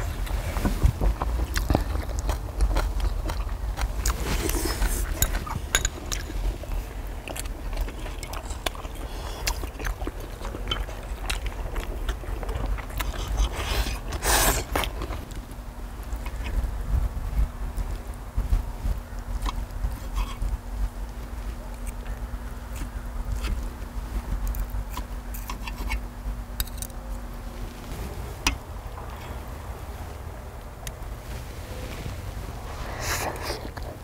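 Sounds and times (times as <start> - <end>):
people chewing: 0.0 - 34.0
steady low rumble: 0.0 - 34.0.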